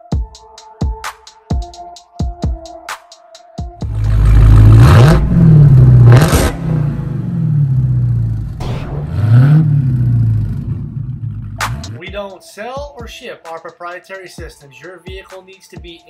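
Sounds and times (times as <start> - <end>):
car engine revving: 3.8 - 12.0.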